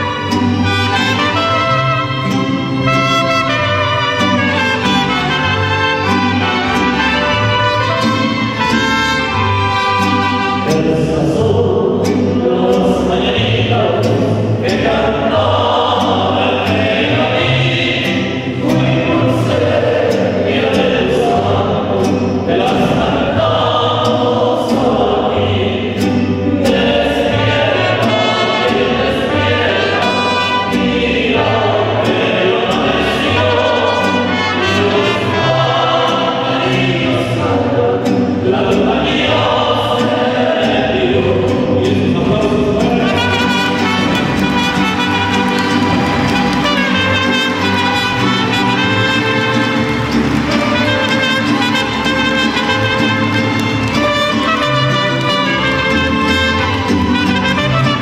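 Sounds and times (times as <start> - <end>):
violins: 0.0 - 11.1, 13.7 - 58.0
bass guitar line: 0.0 - 58.0
strummed guitars: 0.0 - 58.0
men singing together: 10.6 - 58.0.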